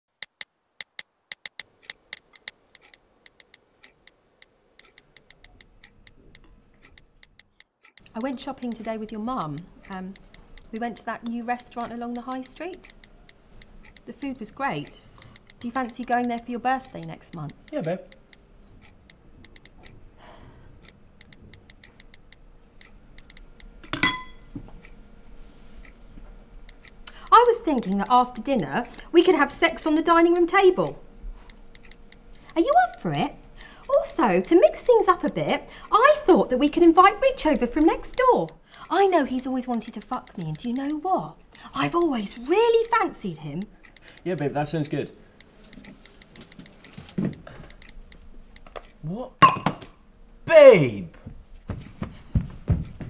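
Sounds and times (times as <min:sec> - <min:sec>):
spoon clinking on bowl: 0:23.9 - 0:24.5.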